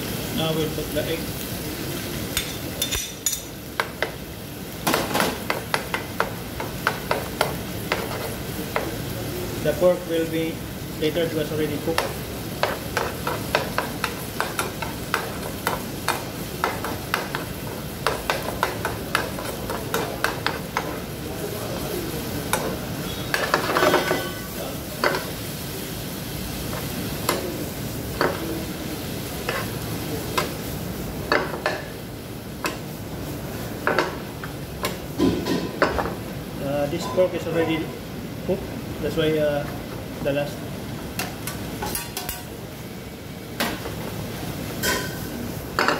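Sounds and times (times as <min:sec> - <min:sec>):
food sizzling: 0:00.0 - 0:45.9
spoon scraping frying pan: 0:29.4 - 0:30.5.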